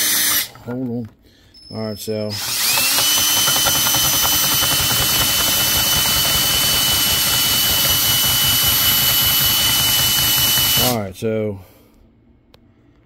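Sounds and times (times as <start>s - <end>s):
power drill whining: 2.3s - 11.0s.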